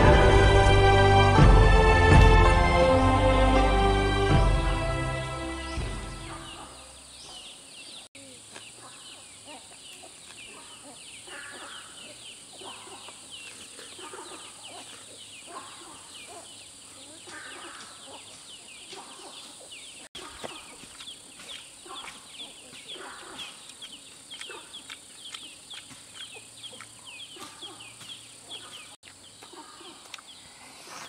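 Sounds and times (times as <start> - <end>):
background music: 0.0 - 6.9
steady high drone: 0.0 - 7.0
low clucking bird calls: 5.8 - 31.0.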